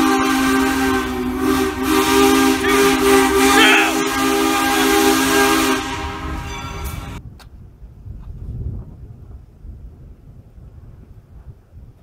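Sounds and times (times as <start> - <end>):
steam hissing: 0.0 - 7.2
steam locomotive whistle: 0.0 - 7.2.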